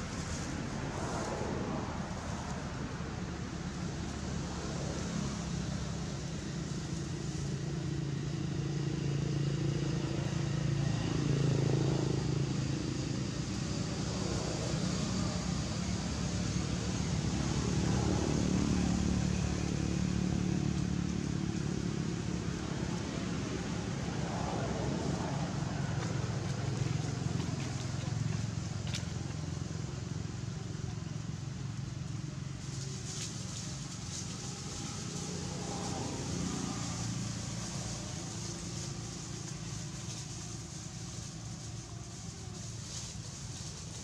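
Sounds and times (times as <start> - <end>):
engine humming: 0.0 - 44.0.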